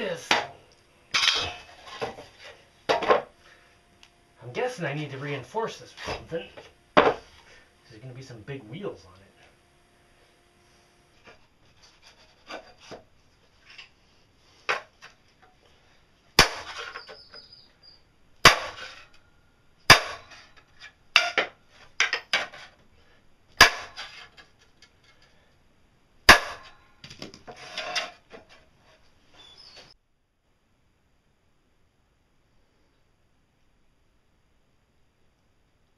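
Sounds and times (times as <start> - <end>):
steel parts clanking: 0.2 - 2.2
metal rattles and scrapes: 1.1 - 3.2, 11.1 - 14.0, 27.4 - 29.1.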